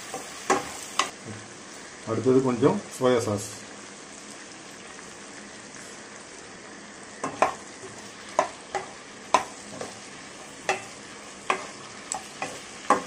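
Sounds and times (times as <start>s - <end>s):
vegetables sizzling in oil: 0.0s - 13.0s
wooden spoon knocking pan: 7.2s - 7.6s, 8.3s - 9.9s, 10.6s - 11.8s, 12.4s - 13.0s.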